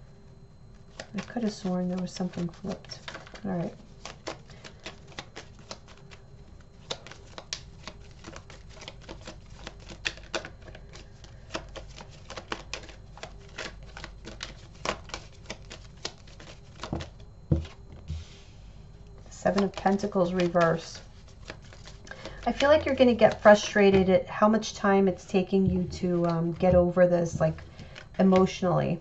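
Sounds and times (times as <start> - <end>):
cards clicking and snapping: 4.0 - 6.0, 6.8 - 17.8, 19.5 - 23.4.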